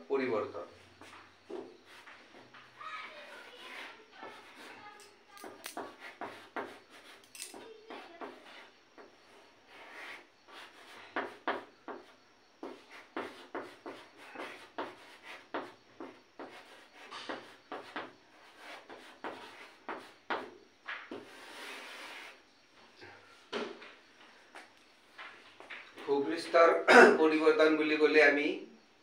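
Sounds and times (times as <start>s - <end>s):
chalk scratching on blackboard: 1.0s - 22.4s.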